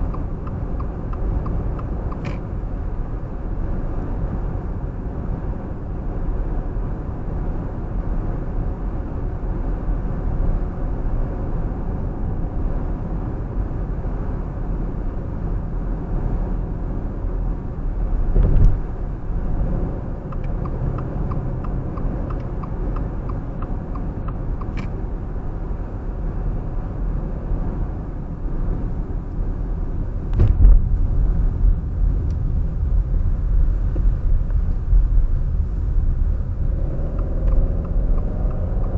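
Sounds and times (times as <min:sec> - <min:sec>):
car road and engine rumble: 0:00.0 - 0:38.9
thump: 0:18.3 - 0:18.8, 0:30.3 - 0:30.9
faint evenly spaced ticks: 0:20.3 - 0:24.9, 0:37.2 - 0:38.9.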